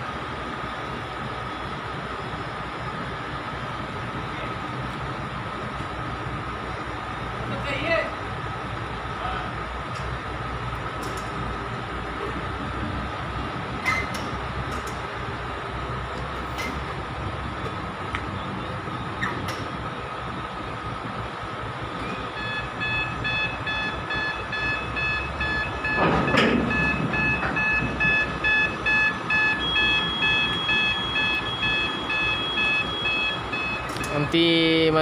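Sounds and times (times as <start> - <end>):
truck engine rumble: 0.0 - 35.0
reversing alarm beeping: 21.8 - 35.0.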